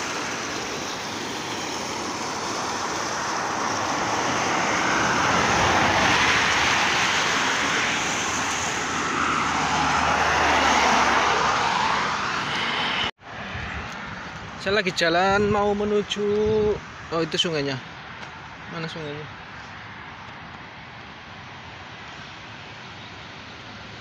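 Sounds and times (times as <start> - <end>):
river water rushing: 0.0 - 13.1
vehicles passing: 0.0 - 24.0.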